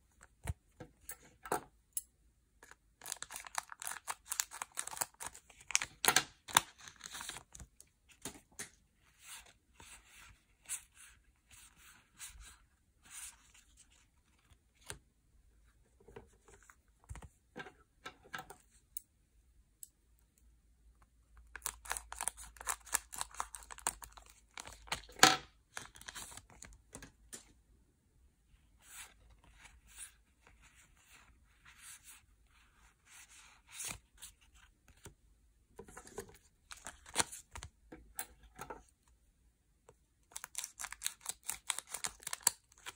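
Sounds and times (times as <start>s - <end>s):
wrappers tearing open: 3.0s - 6.0s.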